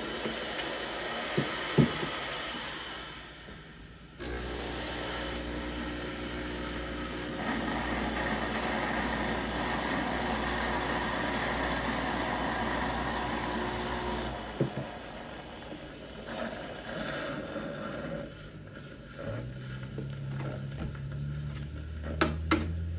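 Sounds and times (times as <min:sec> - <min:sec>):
rushing hiss of steam: 0:00.0 - 0:03.8
espresso machine pump humming: 0:00.0 - 0:16.5.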